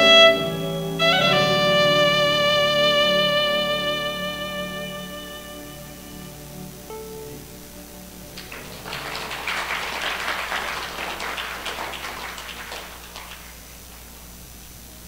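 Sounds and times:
audience clapping: 8.2s - 14.2s.

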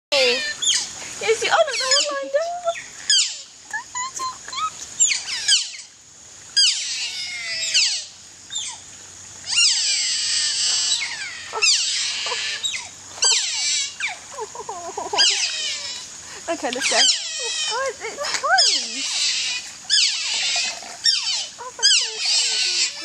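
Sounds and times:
otters squeaking and chirping: 0.2s - 5.9s, 9.5s - 14.2s, 16.7s - 17.8s, 18.5s - 23.0s.

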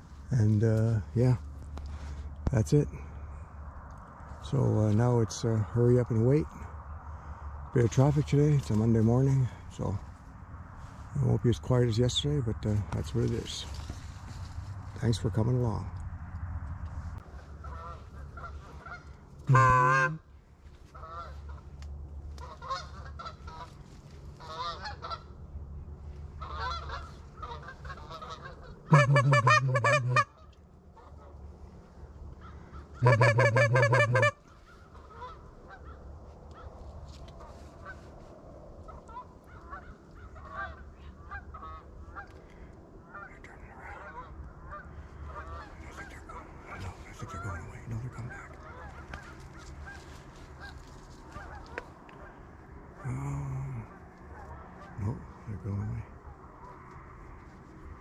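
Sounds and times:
geese honking: 17.3s - 21.7s, 22.3s - 25.4s, 26.3s - 31.4s, 32.4s - 36.7s, 38.9s - 52.4s.

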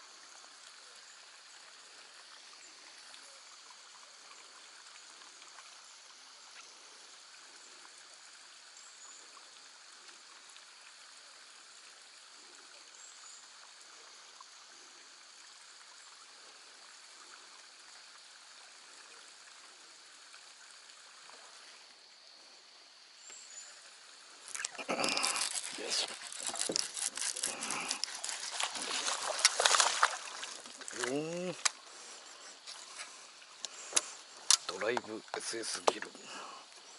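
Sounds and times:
faint outdoor hiss: 0.0s - 36.9s
fish splashing at surface: 24.4s - 31.8s.

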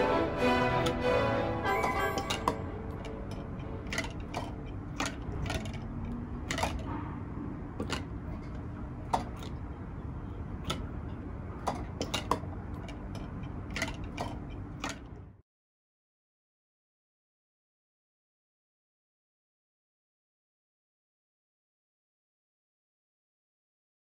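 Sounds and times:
low steady hum: 0.0s - 15.4s
irregular clicks and ticks: 2.2s - 6.9s, 10.6s - 15.3s.

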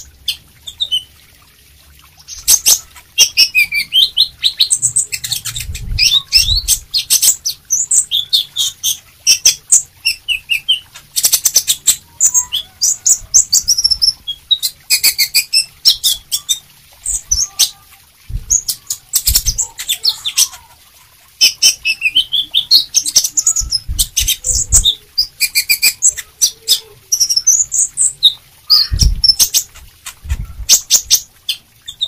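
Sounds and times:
bird chirping and trilling: 0.0s - 1.2s, 2.2s - 32.0s
low thumps: 18.3s - 18.6s, 28.9s - 30.7s.

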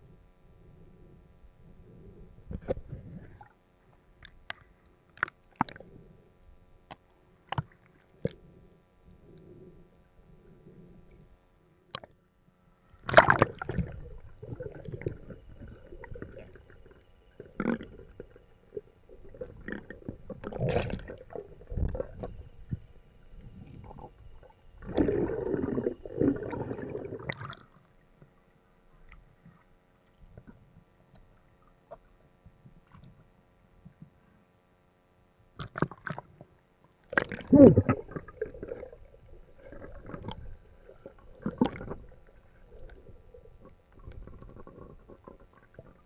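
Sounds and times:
muffled underwater sloshing: 13.0s - 30.8s, 37.2s - 46.0s.

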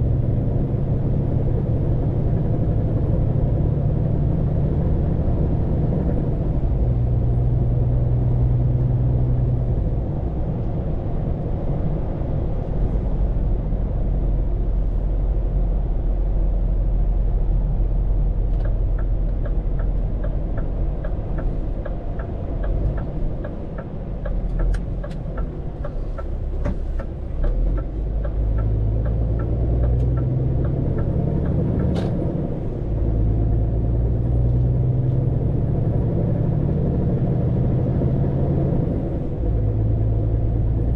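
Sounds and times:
truck diesel engine: 0.0s - 40.9s.

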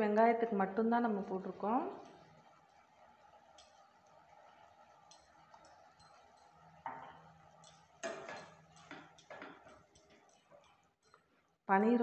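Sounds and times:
spoon scraping a steel pan: 5.1s - 11.3s.

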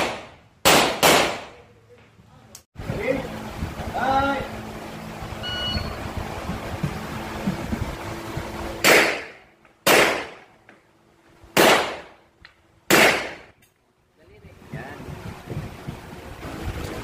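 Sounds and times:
pistol shots echoing indoors: 0.0s - 1.5s
short high beep: 5.4s - 6.0s.

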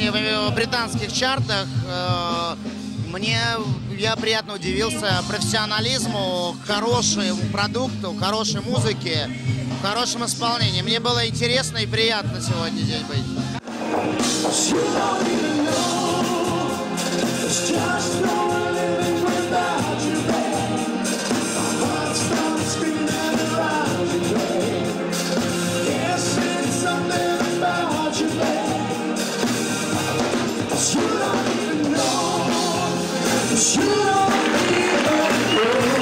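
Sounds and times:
pop-rock band playing: 0.0s - 36.0s
man singing: 14.5s - 25.2s, 25.8s - 29.2s, 30.7s - 36.0s.

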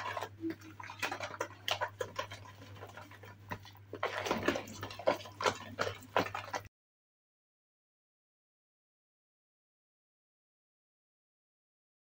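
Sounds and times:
spoon scraping plastic bowl: 0.0s - 6.7s.

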